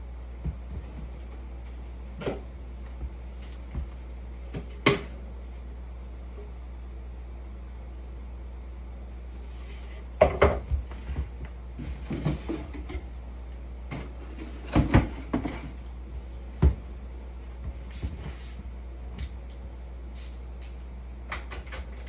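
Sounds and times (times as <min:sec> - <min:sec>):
parts knocking on wooden floor: 0:10.2 - 0:13.0.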